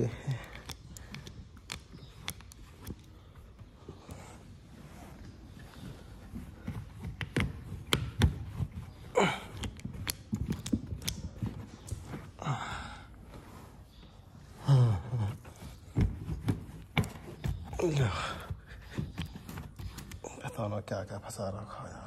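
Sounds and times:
wordless vocal sounds: 0:00.0 - 0:01.4, 0:17.6 - 0:19.0
screwdriver clicking and scraping: 0:00.0 - 0:04.2, 0:09.5 - 0:12.2.

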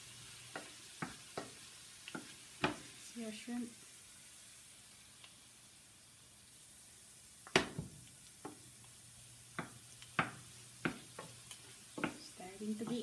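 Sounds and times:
faint sizzle: 0:00.0 - 0:13.0
wooden spatula knocking a pan: 0:00.5 - 0:02.9, 0:07.4 - 0:08.7, 0:09.5 - 0:13.0.

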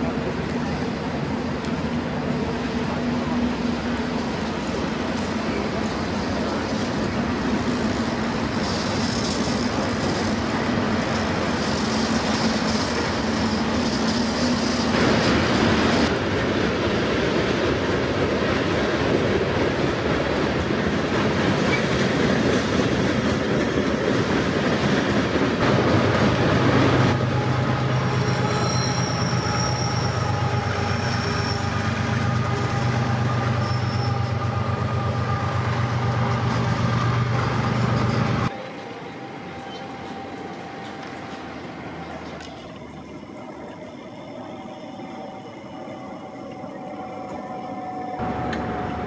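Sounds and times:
train cars clattering over bridge: 0:00.0 - 0:44.1, 0:45.6 - 0:49.0
faint high wheel squeals: 0:27.4 - 0:35.2, 0:37.3 - 0:49.0.

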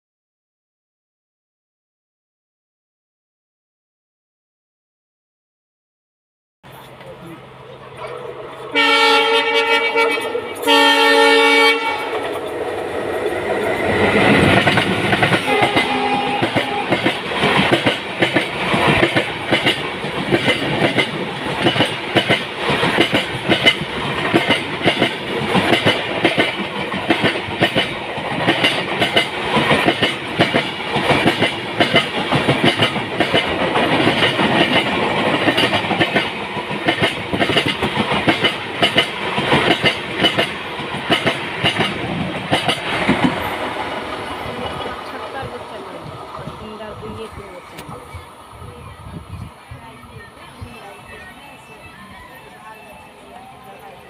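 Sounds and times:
locomotive horn blasts: 0:08.7 - 0:12.2, 0:15.4 - 0:17.0
train wheels clickety-clack: 0:09.6 - 0:48.2.

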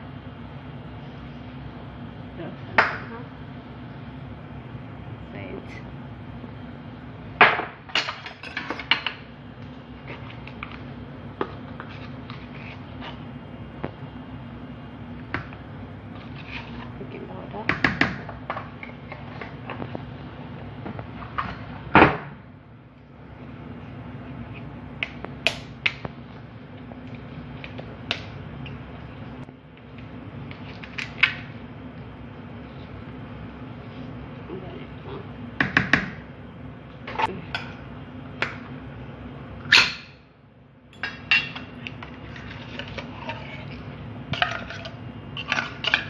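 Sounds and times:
kitchen containers handled: 0:40.9 - 0:46.0.

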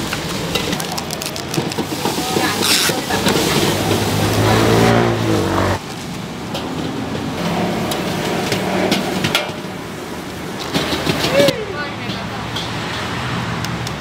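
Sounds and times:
street background: 0:00.0 - 0:14.0
vehicle engine revving: 0:02.5 - 0:05.8.

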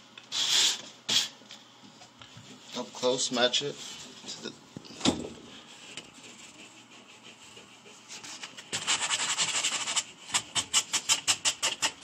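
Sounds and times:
hand scrubbing textured drywall: 0:00.3 - 0:01.4, 0:05.5 - 0:12.0.

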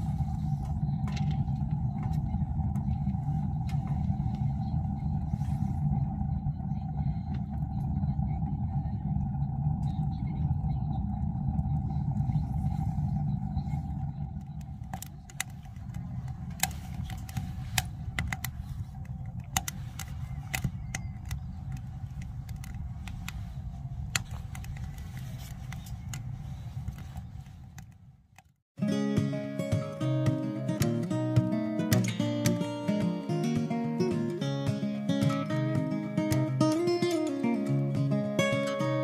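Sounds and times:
wood fire crackling: 0:00.0 - 0:28.6
steady low rumble: 0:00.0 - 0:39.0.

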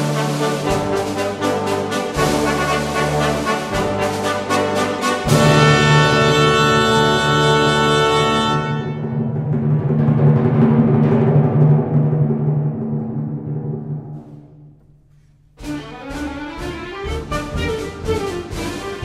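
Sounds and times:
orchestra playing: 0:00.0 - 0:09.7, 0:15.6 - 0:19.0
timpani roll: 0:00.0 - 0:19.0.

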